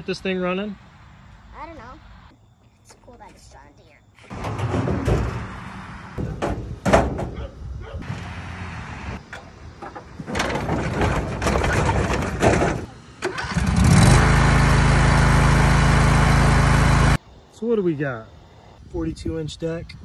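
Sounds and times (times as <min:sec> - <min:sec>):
metal clanks and rattling: 0:04.3 - 0:07.5, 0:09.2 - 0:13.4
mower engine running: 0:13.2 - 0:17.2.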